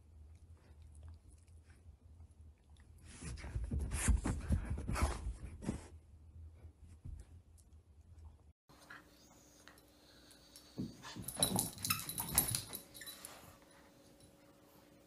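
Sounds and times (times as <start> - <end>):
faint steady hum: 6.2 - 15.0.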